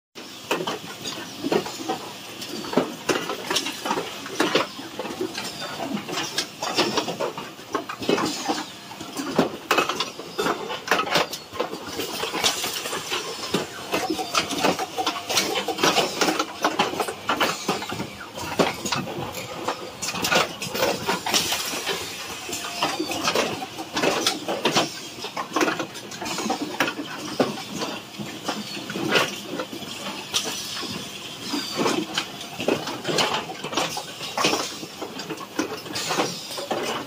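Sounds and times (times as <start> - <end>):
clacks and knocks of moving parts: 0.2 - 37.0
assembly machine running: 8.0 - 25.1.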